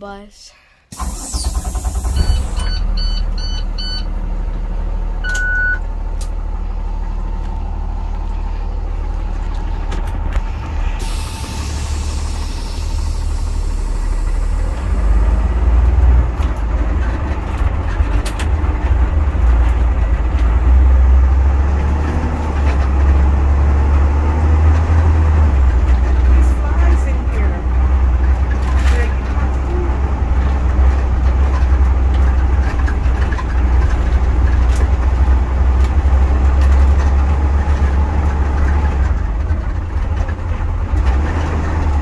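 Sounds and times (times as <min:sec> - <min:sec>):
bus engine rumbling: 0:00.0 - 0:42.0
long beep: 0:02.2 - 0:04.1, 0:05.2 - 0:05.8
short beeps: 0:02.2 - 0:04.1, 0:05.2 - 0:05.8.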